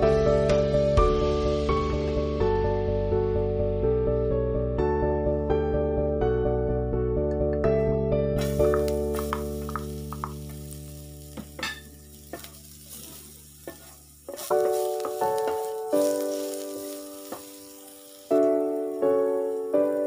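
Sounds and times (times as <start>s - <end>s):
slow piano music: 0.0s - 20.0s
garlic sizzling in oil: 8.4s - 20.0s
spatula stirring and tapping pan: 8.4s - 20.0s.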